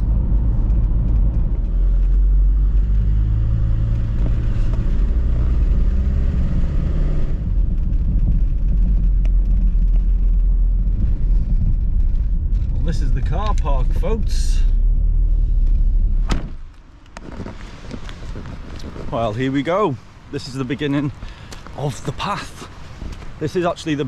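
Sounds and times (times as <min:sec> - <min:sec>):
car engine and road rumble: 0:00.0 - 0:24.0
tyre and road hiss: 0:17.2 - 0:24.0.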